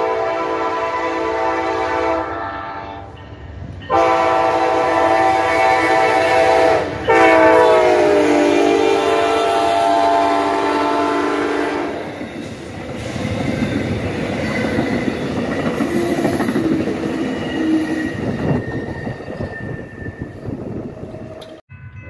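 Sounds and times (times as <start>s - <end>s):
train horn chord: 0.0s - 3.2s, 3.9s - 12.0s
train wheels clattering: 11.9s - 21.6s.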